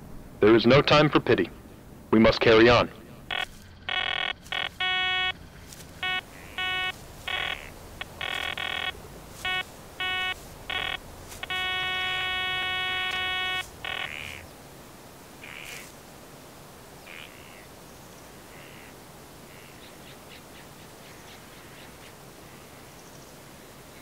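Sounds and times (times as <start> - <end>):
metal detector beeping: 3.3 - 14.4.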